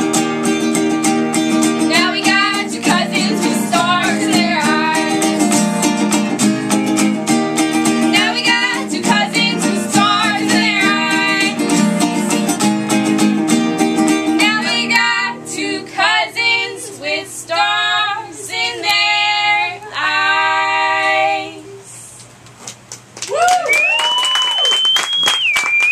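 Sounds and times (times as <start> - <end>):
strummed ukulele and guitar: 0.0 - 17.2
women singing: 1.9 - 5.8, 7.9 - 12.8, 14.3 - 22.1.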